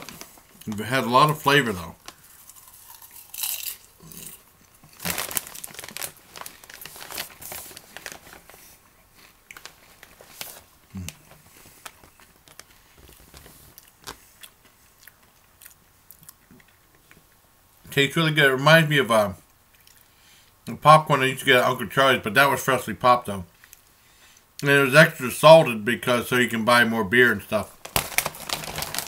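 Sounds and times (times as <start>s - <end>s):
plastic snack bag crinkling: 0.0s - 15.2s, 27.6s - 29.0s
popcorn being chewed: 0.0s - 17.4s, 19.5s - 20.1s, 27.8s - 29.0s.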